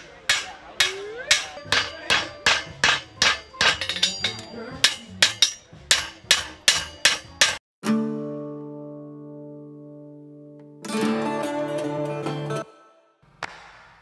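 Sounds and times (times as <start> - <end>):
hammer striking hot steel on anvil: 0.0 - 7.6.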